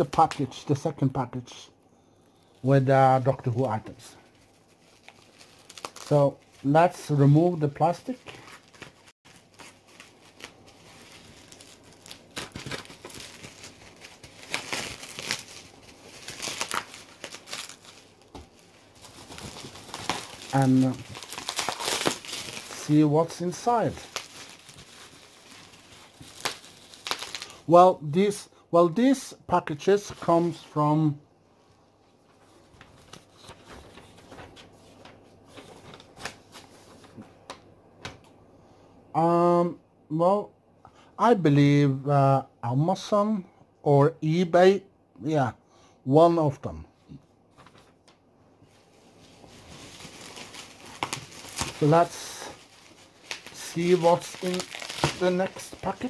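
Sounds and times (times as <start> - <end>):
plastic wrapping crinkling: 2.3 - 27.6, 47.6 - 56.0.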